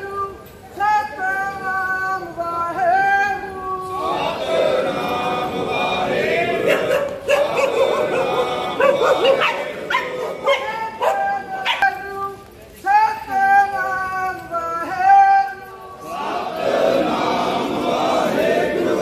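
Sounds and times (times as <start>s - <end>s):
men chanting: 1.0s - 12.1s, 13.2s - 19.0s
dog howling: 6.7s - 12.0s.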